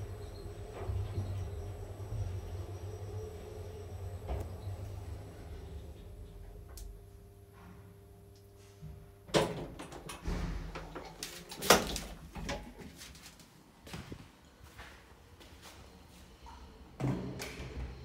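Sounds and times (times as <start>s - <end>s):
sliding doors rumbling open: 0.0s - 6.2s, 10.2s - 10.9s
elevator stopping clunk: 0.0s - 6.8s
elevator hum: 0.0s - 13.1s.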